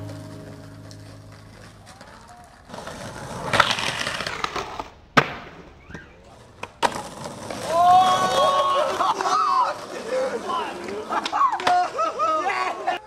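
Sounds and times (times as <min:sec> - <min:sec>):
skateboard grinding on curb: 0:00.0 - 0:12.1
skateboard landing clack: 0:00.8 - 0:07.6.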